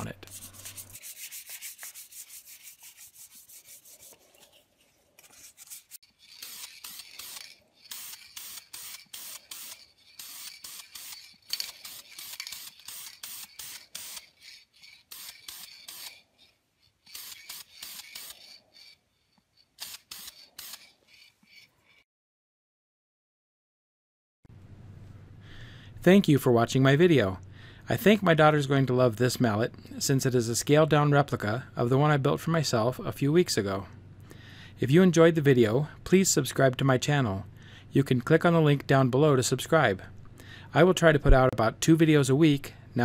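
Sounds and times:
sandpaper rubbing on wood: 0.2 - 4.5, 5.3 - 6.5.

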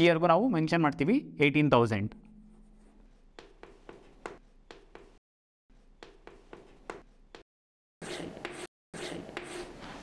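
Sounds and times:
faint chalk scratching: 2.5 - 7.4
chalk tapping on blackboard: 3.1 - 5.2, 5.8 - 7.4.

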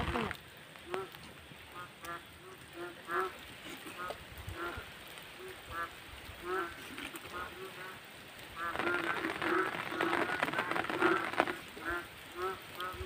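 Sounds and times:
short pitched animal calls: 0.0 - 1.1, 8.6 - 13.0.

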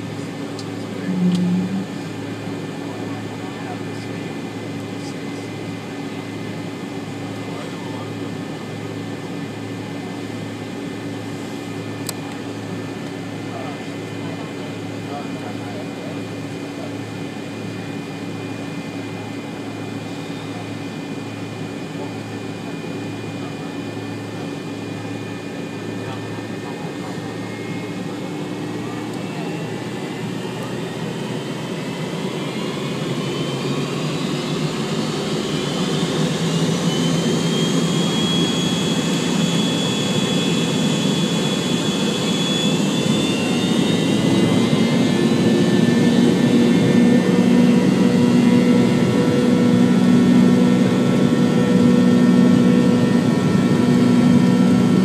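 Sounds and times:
jet engines spooling up: 27.4 - 55.0.

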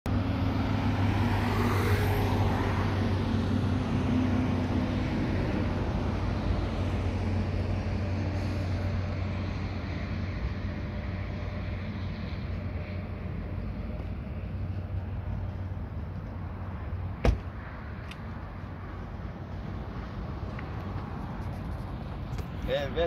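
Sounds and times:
road and traffic noise: 0.1 - 23.0
vehicle engine hum: 0.1 - 23.0.

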